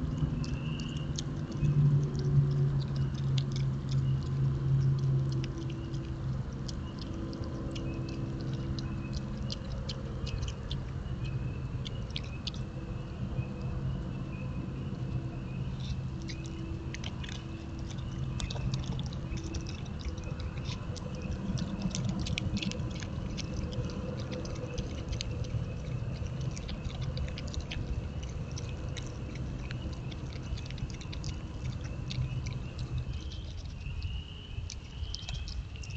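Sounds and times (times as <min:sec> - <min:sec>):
animal chewing food: 0:00.0 - 0:35.9
low hum: 0:00.0 - 0:35.9.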